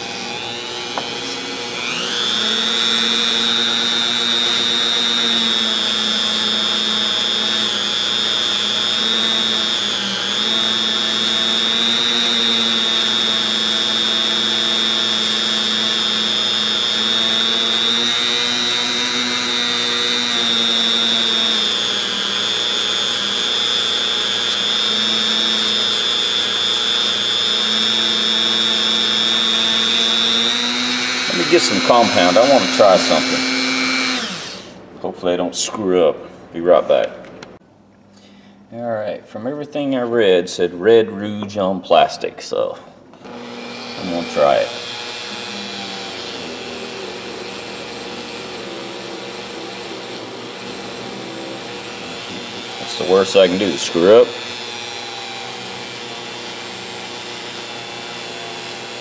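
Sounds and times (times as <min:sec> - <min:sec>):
rotary tool whine: 0:00.0 - 0:34.8, 0:43.2 - 0:59.0.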